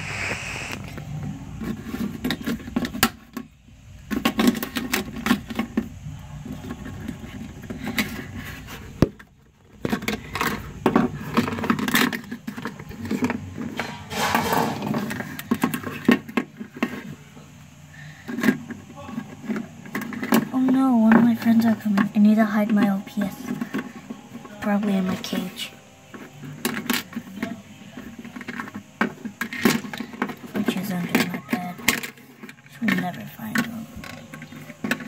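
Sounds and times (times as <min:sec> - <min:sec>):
plastic toys clicking and tapping: 0:01.6 - 0:17.2, 0:18.2 - 0:35.0.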